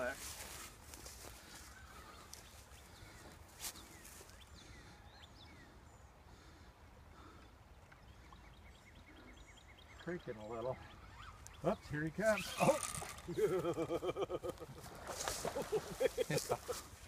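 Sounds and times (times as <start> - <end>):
faint bird chirps: 7.0 - 13.4.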